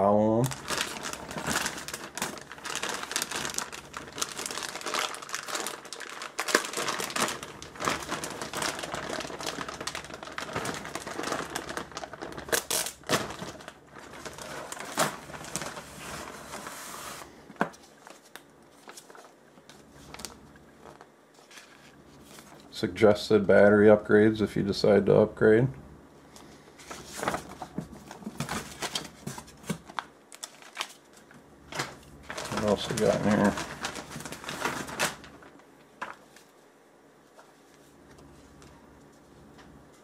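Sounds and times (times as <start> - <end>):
plastic bag crinkling: 0.3 - 22.7, 26.9 - 36.2.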